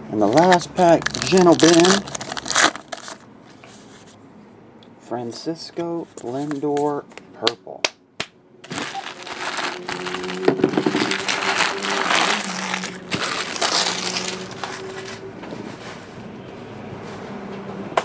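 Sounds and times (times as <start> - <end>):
wrappers crumpled and crinkling: 0.2 - 3.2, 8.6 - 15.3.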